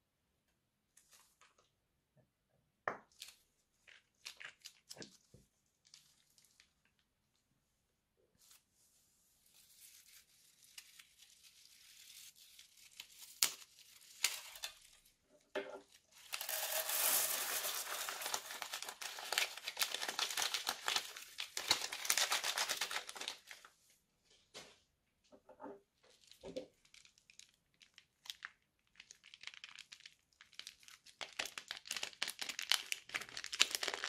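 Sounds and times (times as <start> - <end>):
plastic piping bag crinkling: 3.1 - 7.4, 9.5 - 15.1, 15.9 - 23.7, 26.1 - 34.0.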